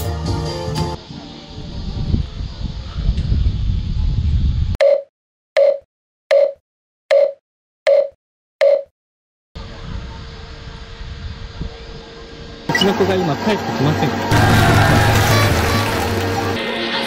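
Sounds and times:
wind buffeting microphone: 1.5s - 4.8s
short electronic beeps: 4.8s - 8.9s.

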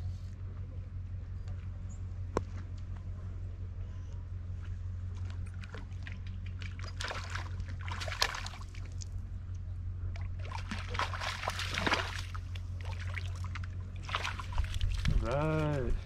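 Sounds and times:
steady low hum: 0.0s - 16.0s
water splashing and trickling: 5.2s - 9.3s, 10.1s - 16.0s.

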